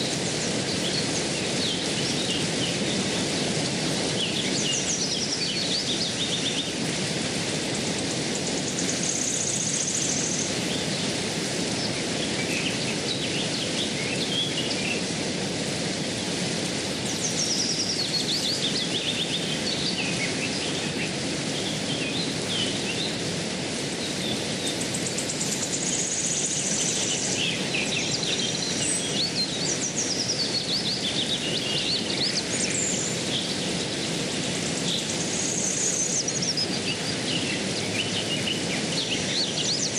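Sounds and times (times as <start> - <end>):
birds calling: 24.0 - 39.9.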